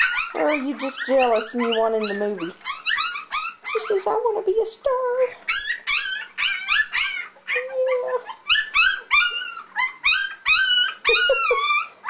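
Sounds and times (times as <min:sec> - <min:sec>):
puppies whining and squealing: 0:00.0 - 0:12.0.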